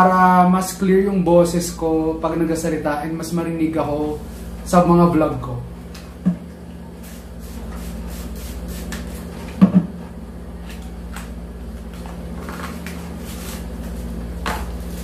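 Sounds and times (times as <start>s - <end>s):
steady low hum: 0.0s - 15.0s
hard knock on table: 9.6s - 9.9s.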